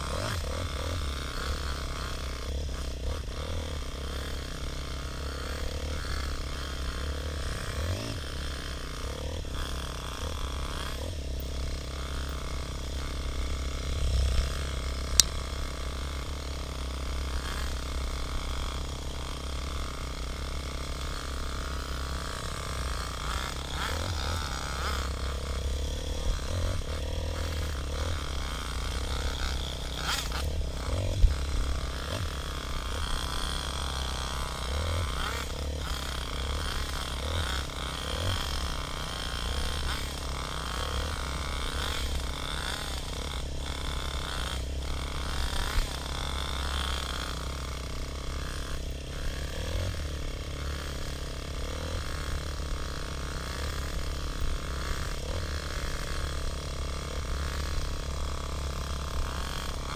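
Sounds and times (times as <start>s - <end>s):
dirt bike engine running: 0.0s - 59.9s
sharp click: 15.2s - 15.4s.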